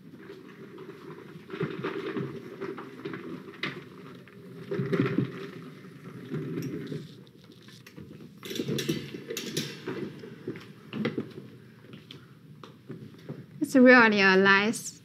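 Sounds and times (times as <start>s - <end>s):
mannequin knocking and clattering: 8.0s - 11.5s.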